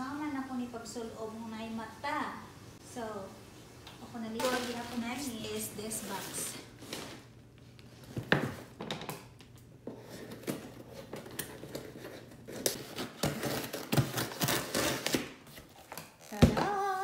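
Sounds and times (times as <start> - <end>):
scissors cutting packing tape: 10.2 - 16.4.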